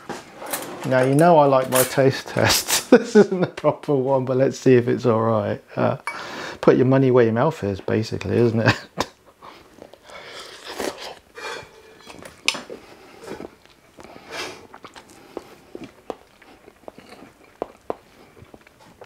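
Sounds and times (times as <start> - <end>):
man chewing food: 9.2 - 19.0.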